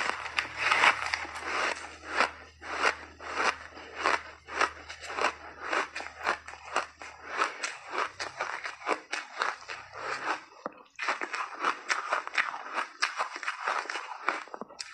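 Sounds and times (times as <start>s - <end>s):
ice being chewed: 0.0s - 14.9s.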